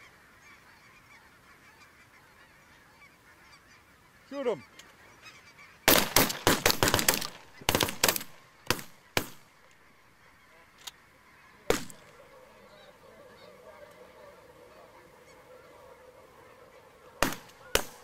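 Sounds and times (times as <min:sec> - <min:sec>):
geese honking: 0:00.0 - 0:18.0
faint distant gunshot: 0:05.9 - 0:09.5, 0:11.7 - 0:12.2, 0:17.2 - 0:18.0
shotgun blasts: 0:05.9 - 0:09.5, 0:11.7 - 0:12.2, 0:17.2 - 0:18.0.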